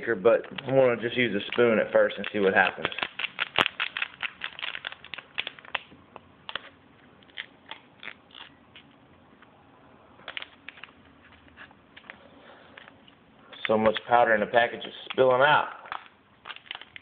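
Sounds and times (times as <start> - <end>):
plastic packet crinkling: 0.1 - 8.9, 10.2 - 13.0, 15.9 - 17.0.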